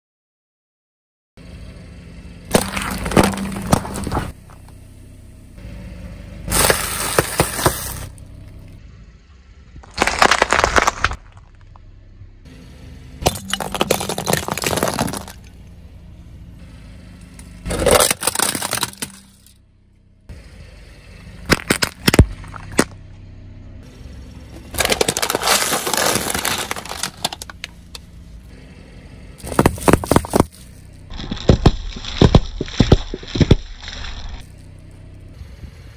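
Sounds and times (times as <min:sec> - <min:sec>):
tyre crushing plastic packaging: 0:02.5 - 0:04.3, 0:06.5 - 0:08.1, 0:09.8 - 0:11.4, 0:13.2 - 0:15.4, 0:24.7 - 0:27.7, 0:29.4 - 0:34.4.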